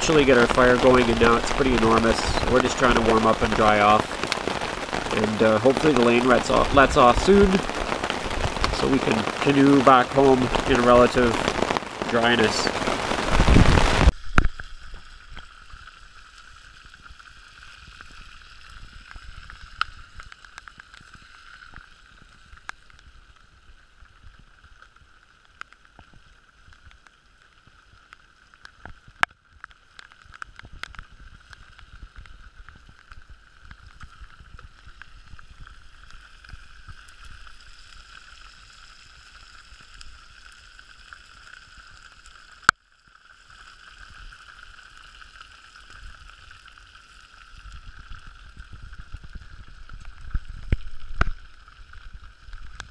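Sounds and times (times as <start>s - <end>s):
meat sizzling in a skillet: 0.0s - 27.1s, 32.9s - 52.9s
campfire crackling: 0.0s - 52.9s.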